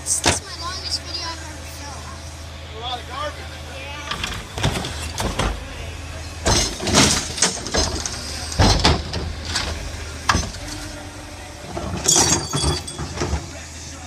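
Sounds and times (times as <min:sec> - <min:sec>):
garbage truck humming: 0:00.0 - 0:14.0
grabber arms clanking: 0:04.1 - 0:13.6.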